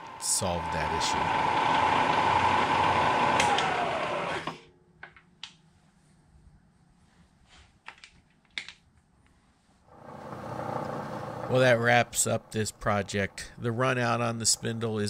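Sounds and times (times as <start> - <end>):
milling machine spindle whine: 0.0 - 4.6, 9.9 - 13.4
steady machine running sound: 0.0 - 4.6, 9.9 - 13.4.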